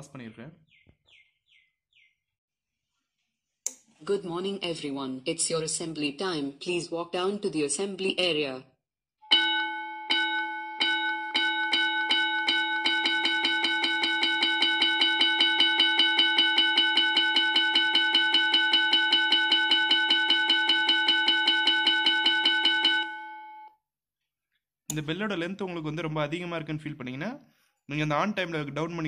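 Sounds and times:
school bell ringing through speaker: 9.2 - 23.7.

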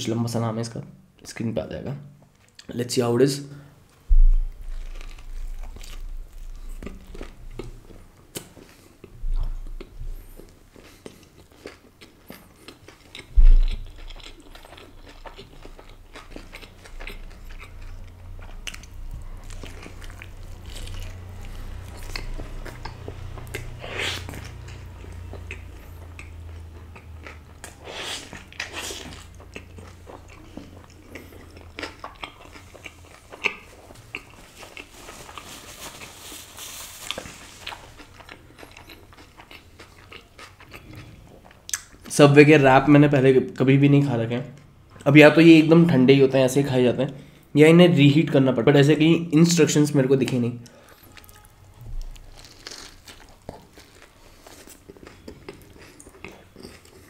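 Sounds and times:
person chewing food: 3.9 - 42.1, 50.3 - 57.0
heavy low thump: 4.1 - 4.8, 13.3 - 14.0.

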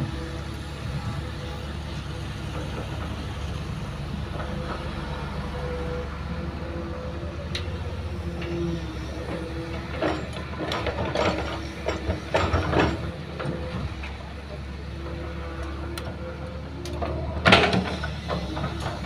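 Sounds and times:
excavator engine rumble: 0.0 - 19.0
sharp knocks and clanks: 9.7 - 14.2, 16.9 - 19.0.

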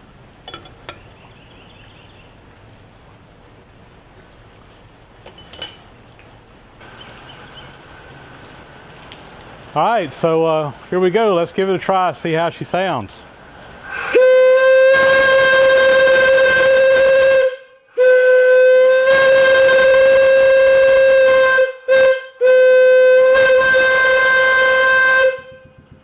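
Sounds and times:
steam whistle blasts: 13.9 - 25.8.

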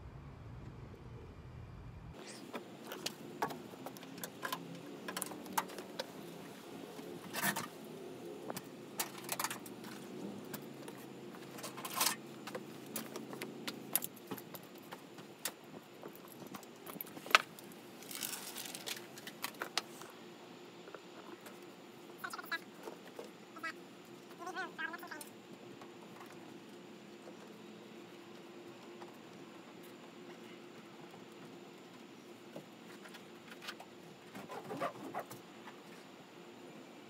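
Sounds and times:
low steady hum: 0.0 - 34.3
sheets rustling: 17.9 - 19.2
foil sheets crinkling: 18.0 - 19.4.

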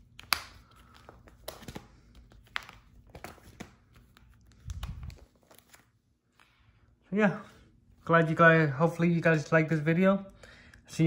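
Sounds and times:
plastic sleeves crinkling: 0.0 - 6.6.

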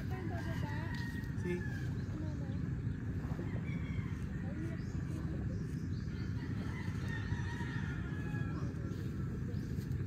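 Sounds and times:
distant rooster crowing: 0.4 - 2.2, 3.2 - 5.2, 6.1 - 9.3.

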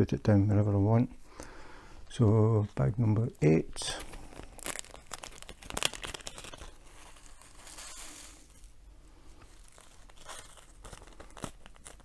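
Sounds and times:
plastic bag crinkling: 3.7 - 8.8, 9.4 - 12.0.

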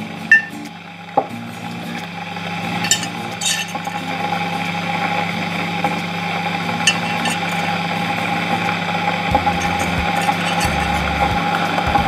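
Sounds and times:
spoon clinking ceramic mug: 2.8 - 3.8, 6.9 - 7.6.

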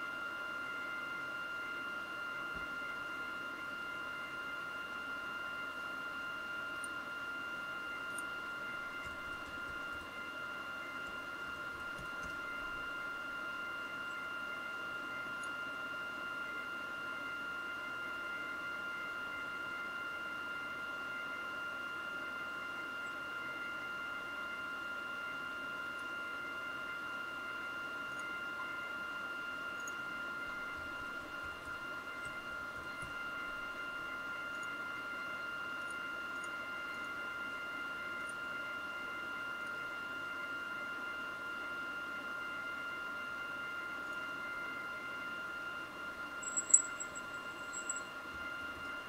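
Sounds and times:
high-pitched electrical whine: 46.1 - 49.0.

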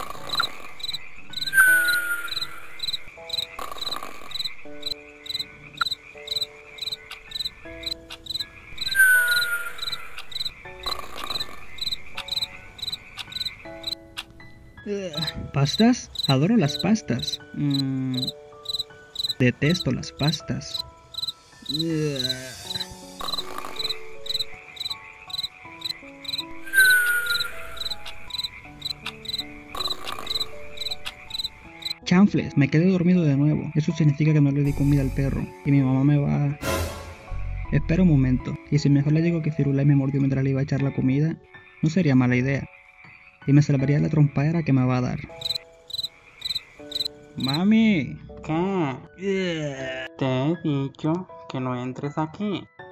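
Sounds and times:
continuous insect trill: 0.0 - 14.2, 15.2 - 32.0, 45.3 - 47.7
soft slow melodic music: 0.0 - 52.9
crickets chirping: 0.1 - 14.1, 15.2 - 32.0, 45.3 - 47.6.

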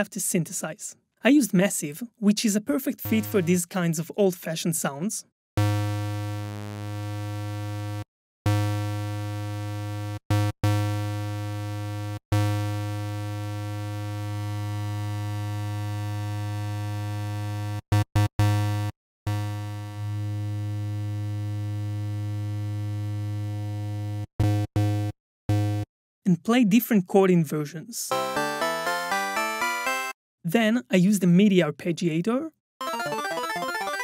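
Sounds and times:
synthesizer low drone note: 3.0 - 3.6, 5.6 - 8.0.

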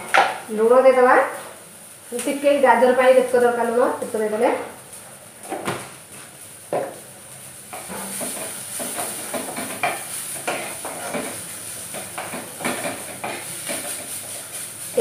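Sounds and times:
oil sizzling: 0.0 - 15.0
wooden spatula scraping a wok: 6.1 - 15.0.

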